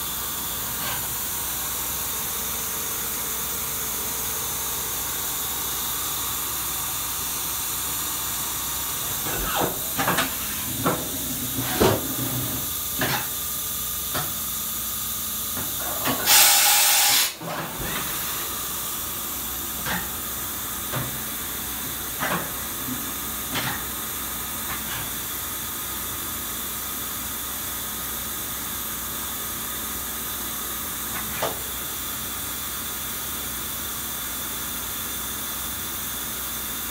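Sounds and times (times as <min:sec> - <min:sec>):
machine hissing: 0:15.8 - 0:19.1
loud burst of hiss: 0:16.2 - 0:18.8.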